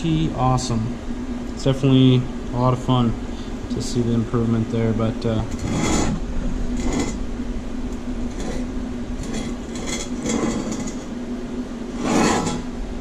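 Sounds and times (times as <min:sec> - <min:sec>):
steady hum: 0:00.0 - 0:13.0
metal scraping on workbench: 0:05.5 - 0:06.2, 0:06.8 - 0:07.2, 0:08.3 - 0:11.1, 0:12.0 - 0:12.7.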